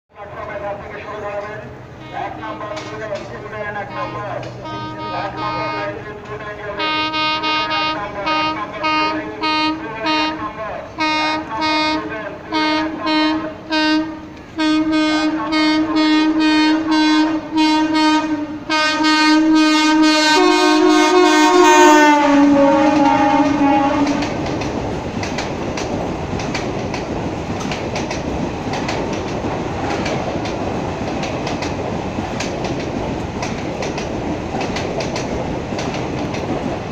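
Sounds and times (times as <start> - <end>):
train horn blasts: 1.9 - 24.4
train wheels clacking on rails: 2.4 - 4.8, 20.8 - 36.9.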